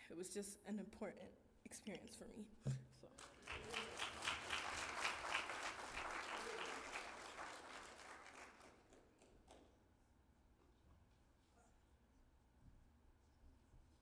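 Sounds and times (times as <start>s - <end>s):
congregation applauding: 3.1s - 9.6s.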